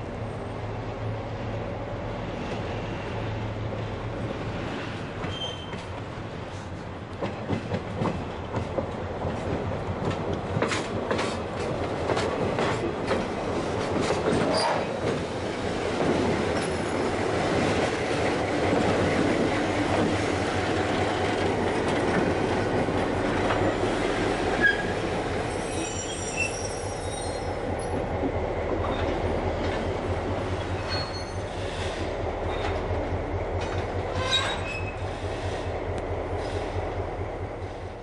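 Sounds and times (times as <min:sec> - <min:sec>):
diesel locomotive engine: 0:00.0 - 0:38.0
wheels rumbling on rails: 0:00.0 - 0:38.0
wheel squeal: 0:05.2 - 0:05.9, 0:24.6 - 0:27.6, 0:30.8 - 0:31.6, 0:34.1 - 0:35.1.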